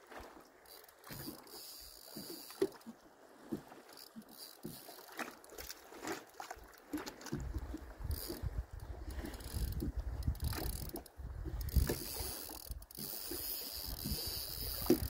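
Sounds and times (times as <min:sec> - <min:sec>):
fishing reel whirring and clicking: 0:00.6 - 0:02.9, 0:03.8 - 0:05.8, 0:07.0 - 0:15.0
wind buffeting microphone: 0:07.4 - 0:12.9.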